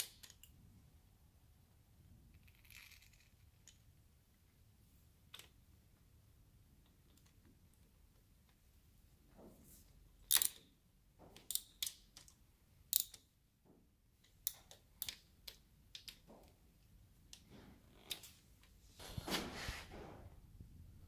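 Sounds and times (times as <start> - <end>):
wrench clicking on metal nuts: 10.3 - 10.7, 11.4 - 13.3.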